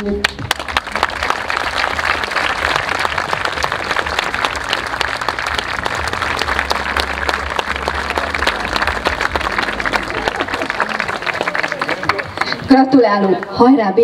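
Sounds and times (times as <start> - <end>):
audience applauding: 0.2 - 12.8.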